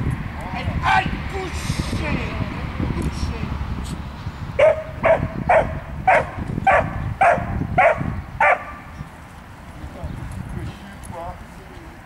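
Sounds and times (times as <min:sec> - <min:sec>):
dog barking: 0:04.6 - 0:08.8.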